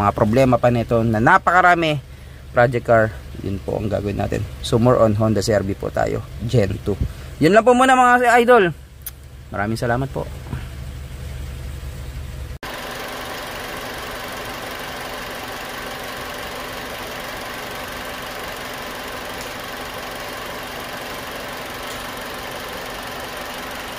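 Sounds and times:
car engine idling: 0:00.0 - 0:23.9.

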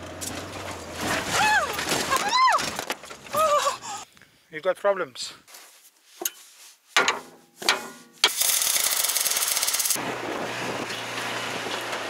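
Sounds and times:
van engine and tyres on sand: 0:00.0 - 0:03.8, 0:10.0 - 0:12.0
loud fast rattling: 0:08.3 - 0:10.0.

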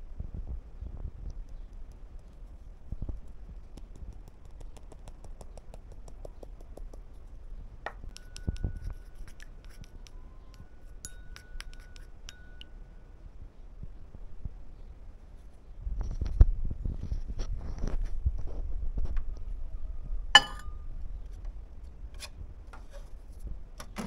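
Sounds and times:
light scratching: 0:08.1 - 0:12.7, 0:20.4 - 0:23.5.

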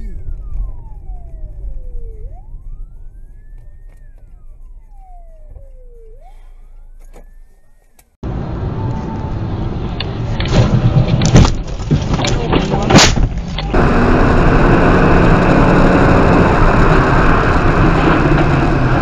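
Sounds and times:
siren wailing: 0:00.0 - 0:10.3
car road rumble: 0:00.0 - 0:19.0.

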